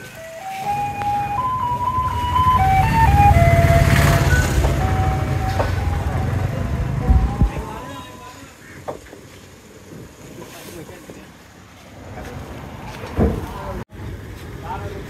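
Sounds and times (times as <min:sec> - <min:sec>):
vehicle engine passing: 0:00.0 - 0:08.1
electronic jingle: 0:00.0 - 0:08.2.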